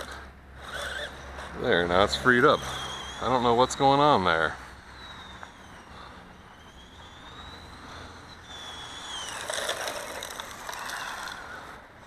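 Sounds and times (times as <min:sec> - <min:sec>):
toy car electric motor whining: 0:00.0 - 0:11.8
tyres crackling on gravel: 0:08.5 - 0:11.8.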